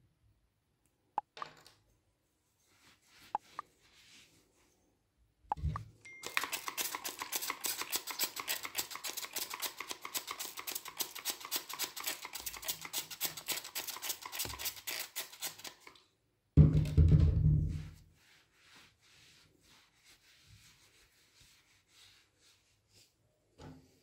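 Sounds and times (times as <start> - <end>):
spray bottle squirts: 6.2 - 15.8.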